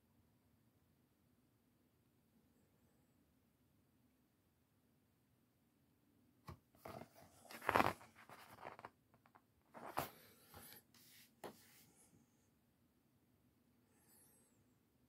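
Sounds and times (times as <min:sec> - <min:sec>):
book pages rustling: 0:06.8 - 0:11.8.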